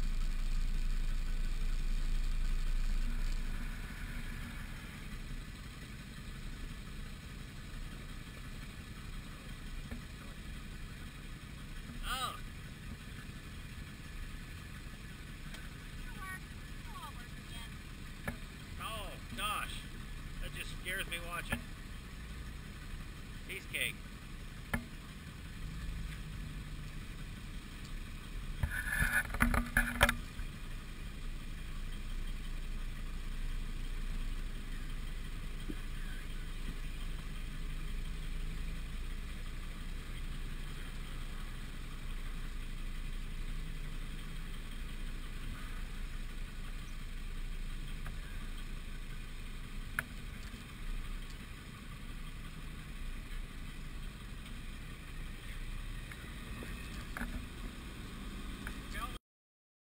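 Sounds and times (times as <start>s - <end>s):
engine revving and clatter: 0.0s - 59.2s
off-road engine running: 0.0s - 59.2s.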